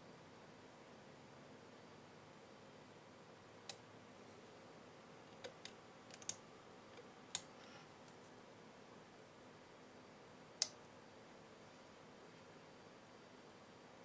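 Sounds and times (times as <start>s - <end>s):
small switch clicks: 10.6s - 10.8s.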